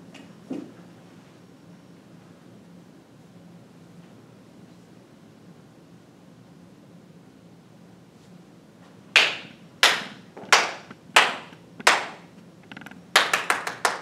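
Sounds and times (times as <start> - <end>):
man clapping hands: 9.2 - 12.3, 13.2 - 14.0.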